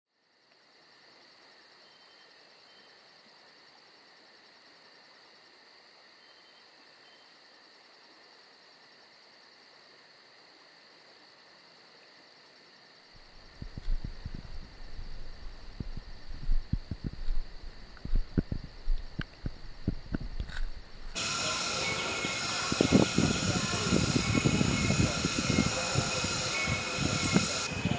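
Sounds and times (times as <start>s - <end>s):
insects trilling: 0.2s - 27.9s
rapid pulsing high insect note: 13.2s - 27.9s
irregular knocks and rustles: 13.6s - 21.2s.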